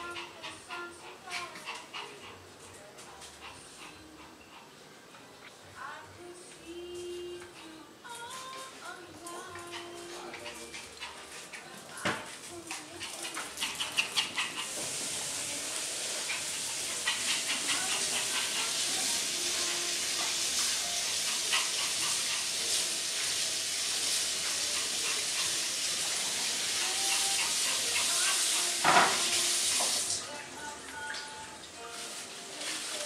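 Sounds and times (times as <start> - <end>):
steady hiss: 13.8 - 30.2.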